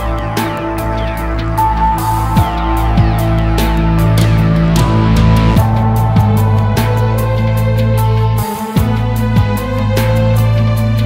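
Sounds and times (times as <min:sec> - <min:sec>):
deep falling bass sweeps: 0:00.0 - 0:11.0
electronic music with sustained chords: 0:00.0 - 0:11.0
drum hits: 0:02.3 - 0:09.0.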